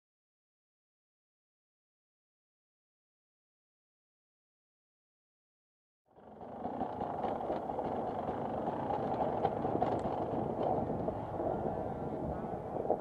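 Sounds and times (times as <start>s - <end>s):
motorcycle engine: 6.2s - 11.6s
wind noise: 6.5s - 13.0s.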